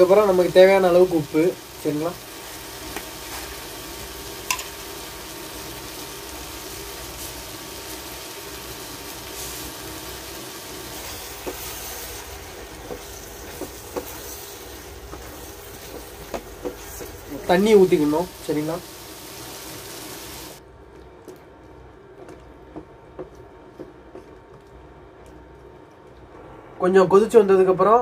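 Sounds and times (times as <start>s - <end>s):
food sizzling in a frying pan: 0.0s - 20.6s
cooktop hum: 0.0s - 28.0s.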